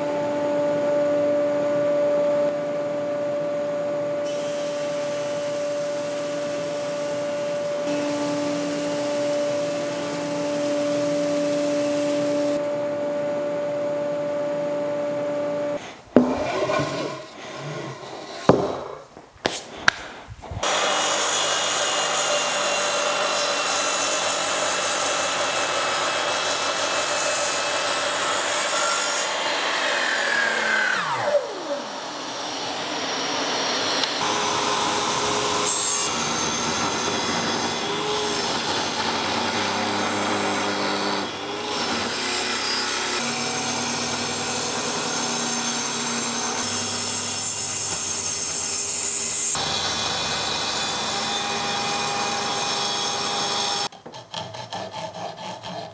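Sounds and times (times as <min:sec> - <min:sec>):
table saw cutting: 0:00.0 - 0:19.1, 0:20.6 - 0:55.9
power saws cutting wood: 0:04.2 - 0:12.8, 0:15.6 - 0:19.0, 0:19.9 - 0:55.9
sharp wooden knocks: 0:16.2 - 0:16.6, 0:18.5 - 0:19.0
saw blade winding down: 0:20.6 - 0:46.7.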